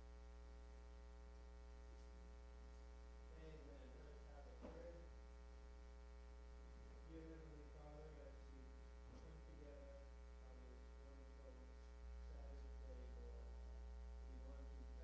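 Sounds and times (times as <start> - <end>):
electrical mains hum: 0.0 - 15.0
thin electrical buzz: 0.0 - 15.0.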